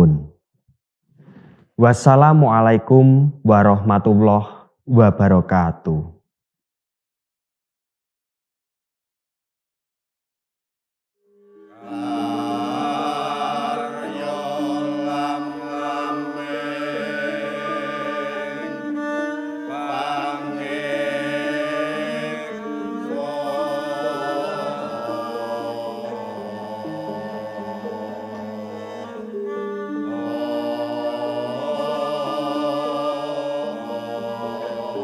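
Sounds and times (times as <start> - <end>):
gamelan music: 11.5 - 35.0.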